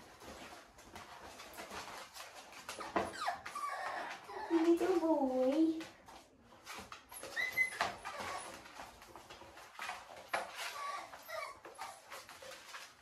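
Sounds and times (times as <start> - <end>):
puppy whimpering: 2.3 - 5.4, 6.9 - 12.9.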